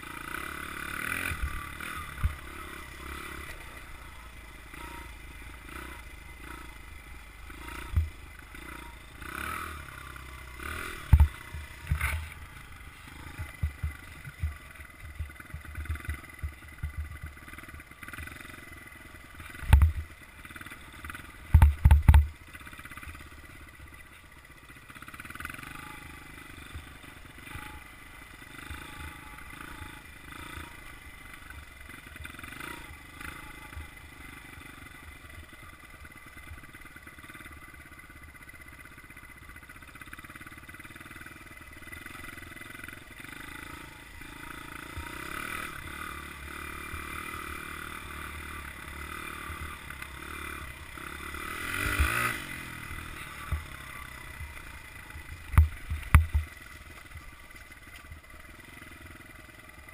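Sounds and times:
dirt bike engine running: 0.0 - 59.9.

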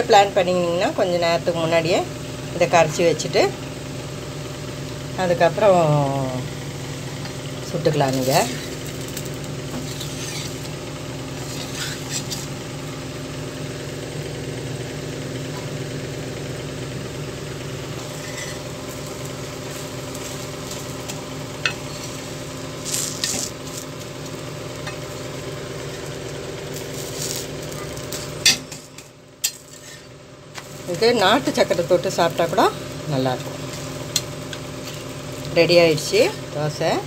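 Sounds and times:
batter sizzling on a pan: 0.0 - 37.0
spatula scraping and tapping pan: 18.1 - 18.7.

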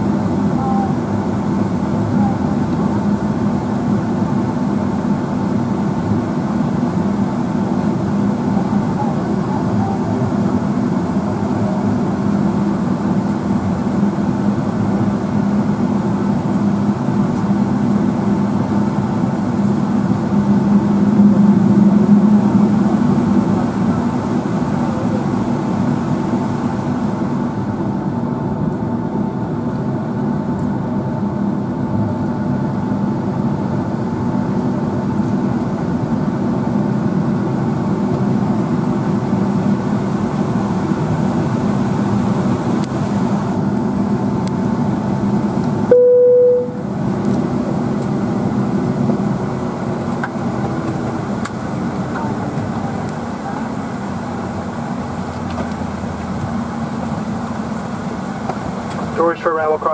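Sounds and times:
airliner engines idling: 0.0 - 59.9
cabin chime tone: 45.9 - 46.8.

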